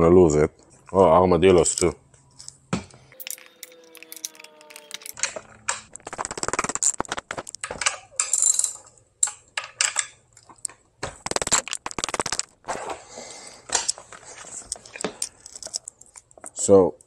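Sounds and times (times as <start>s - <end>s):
ratchet wrench clicking: 3.2s - 5.2s.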